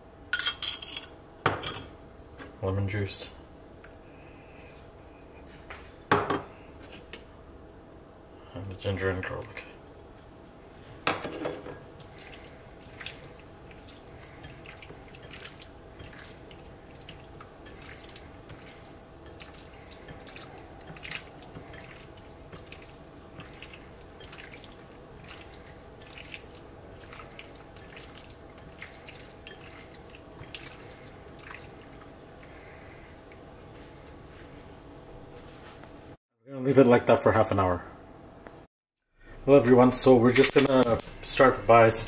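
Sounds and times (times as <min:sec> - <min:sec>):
wet squelches of chicken mixed by hand: 0:12.0 - 0:32.8.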